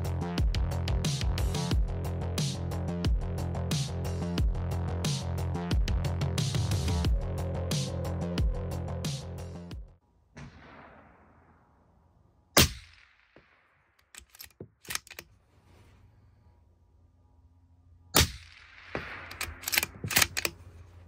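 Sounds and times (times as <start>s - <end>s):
suppressed rifle shots: 10.4s - 11.7s, 12.6s - 15.1s, 18.2s - 20.6s
rifle bolt clicking: 14.0s - 15.3s, 19.2s - 20.6s.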